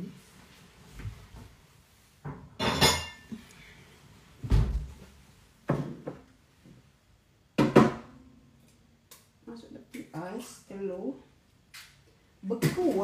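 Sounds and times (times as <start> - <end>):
dull kitchen thuds: 4.4 - 5.0, 5.6 - 6.3, 7.6 - 8.2.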